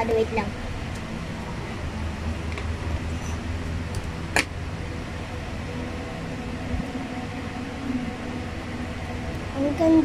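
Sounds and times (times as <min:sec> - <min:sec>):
low background hum: 0:00.0 - 0:10.0.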